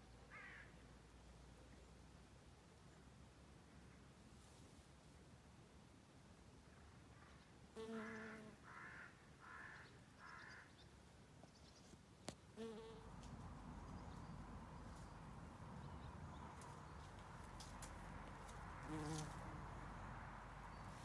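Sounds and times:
bumblebee buzzing in flight: 18.8s - 19.6s.

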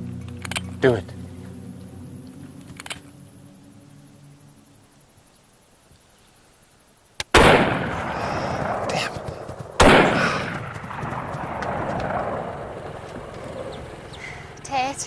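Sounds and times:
rifle shots with echo: 7.2s - 13.8s.

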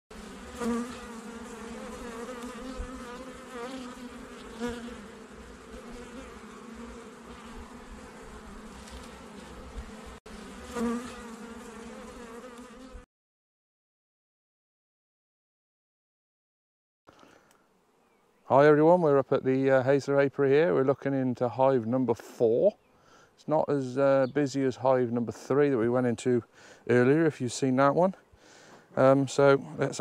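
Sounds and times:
honeybees buzzing: 0.1s - 13.1s.

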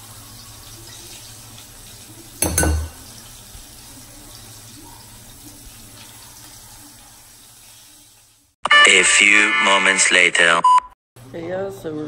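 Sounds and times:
fish sizzling in hot oil: 0.0s - 8.6s.

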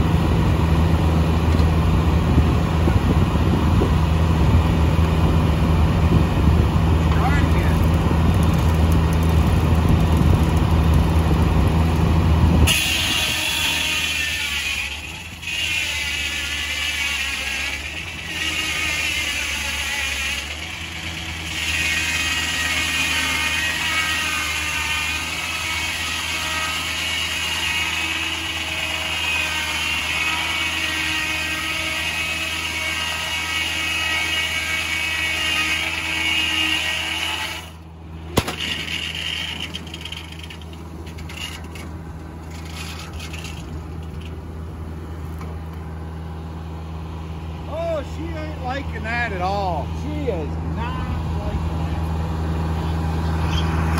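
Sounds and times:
engine droning: 0.0s - 53.9s
saw blade whining through log: 6.8s - 44.6s.

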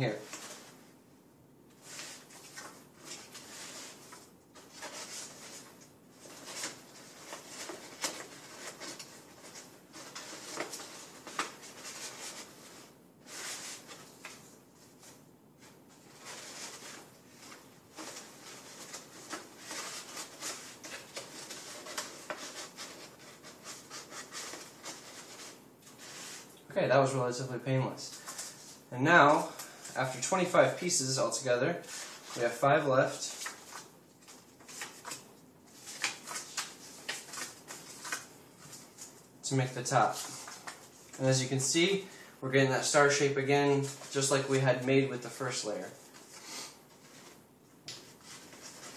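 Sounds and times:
small paper crackles: 1.8s - 26.5s, 31.8s - 39.2s
stiff paper rustling and crinkling: 1.8s - 26.6s, 28.1s - 41.3s, 45.2s - 48.9s.

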